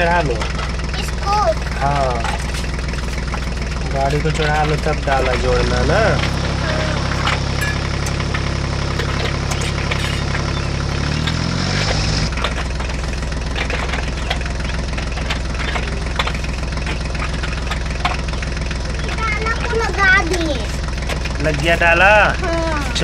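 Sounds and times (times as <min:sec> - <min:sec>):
tractor engine idling: 0:00.0 - 0:23.0.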